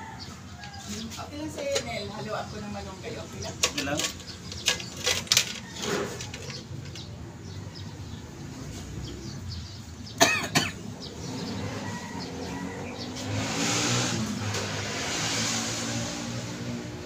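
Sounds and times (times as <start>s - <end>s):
metal parts clicking: 3.6s - 7.1s.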